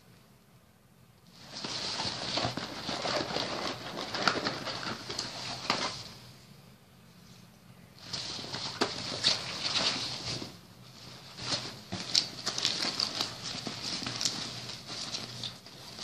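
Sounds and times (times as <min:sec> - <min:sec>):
nylon backpack rustling: 0:08.0 - 0:16.0.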